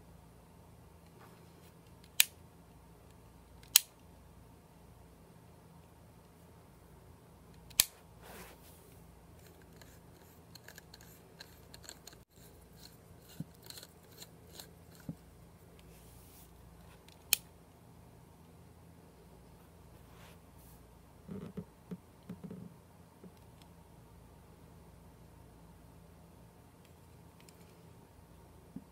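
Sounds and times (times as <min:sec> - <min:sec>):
low steady hum: 0:00.0 - 0:28.9.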